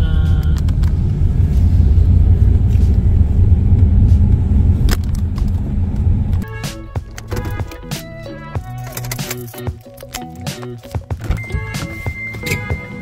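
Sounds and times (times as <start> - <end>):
car interior road rumble: 0.0 - 6.4
background music: 6.4 - 13.0.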